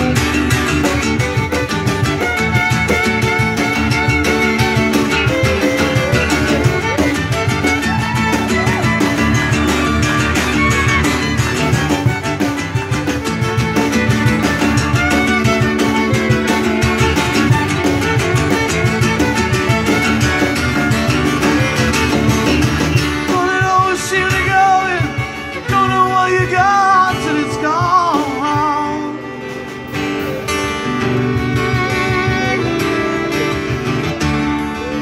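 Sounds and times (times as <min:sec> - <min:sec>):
drum kit: 0:00.0 - 0:34.2
acoustic guitar strumming: 0:00.0 - 0:35.0
fiddle: 0:00.0 - 0:35.0
conga: 0:00.1 - 0:23.1.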